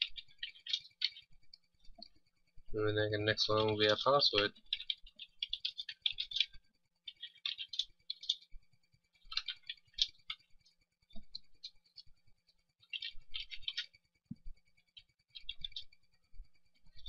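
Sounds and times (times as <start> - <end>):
computer keyboard typing: 9.3 - 10.5.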